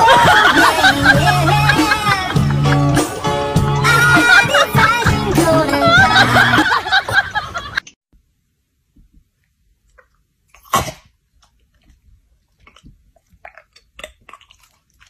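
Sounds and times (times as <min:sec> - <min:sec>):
background music: 0:00.0 - 0:06.8
pet sneezing: 0:10.6 - 0:11.2.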